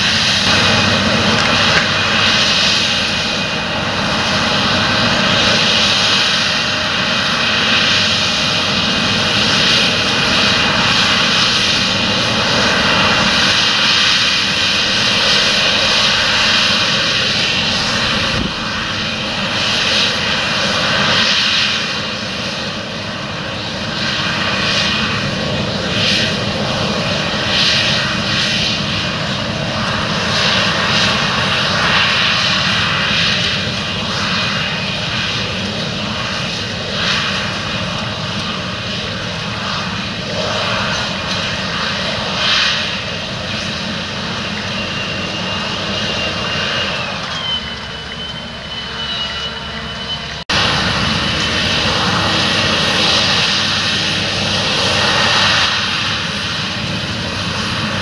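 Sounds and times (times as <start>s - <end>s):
dense rushing noise: 0.0s - 20.2s, 41.1s - 58.0s.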